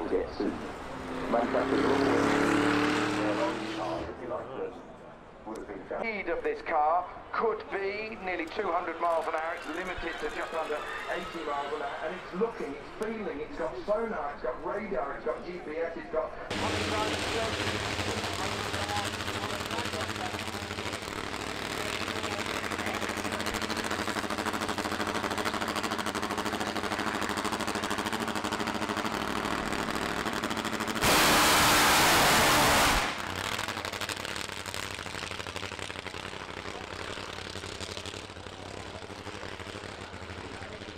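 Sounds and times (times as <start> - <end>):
motorcycle engine revving: 0.5 - 4.2, 16.5 - 40.9.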